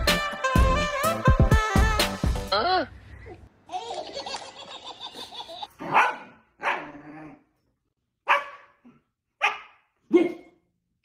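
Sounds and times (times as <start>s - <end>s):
dog barking: 5.8s - 7.0s, 8.2s - 10.6s.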